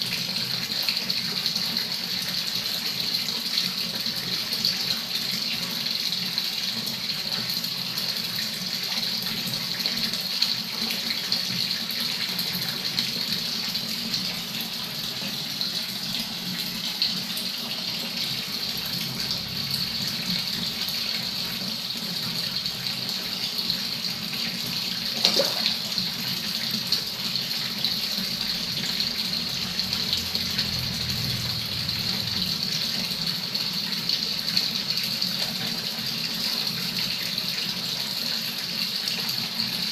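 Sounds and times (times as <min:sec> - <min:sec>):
water splashing into pond: 0:24.9 - 0:26.6.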